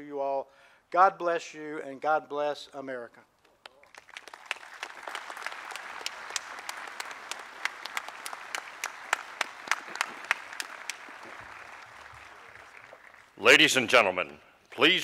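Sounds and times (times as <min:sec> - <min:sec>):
loud single claps: 0:03.6 - 0:13.2
audience applause: 0:03.8 - 0:13.4.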